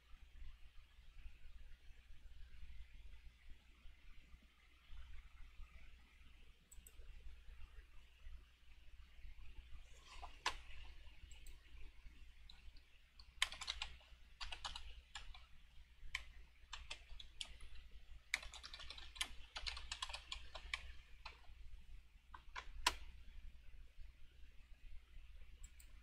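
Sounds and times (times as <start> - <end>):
low steady hum: 0.0 - 26.0
computer keyboard typing: 10.0 - 11.7, 12.5 - 15.5, 16.1 - 21.6, 22.3 - 23.1.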